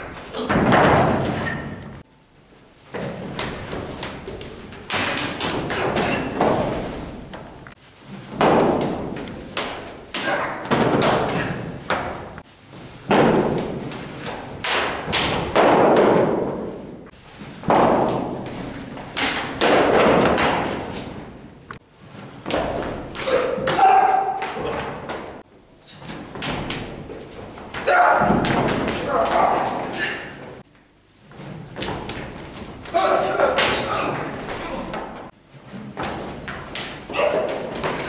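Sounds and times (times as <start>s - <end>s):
thuds and slaps of strikes: 13.1s - 13.8s.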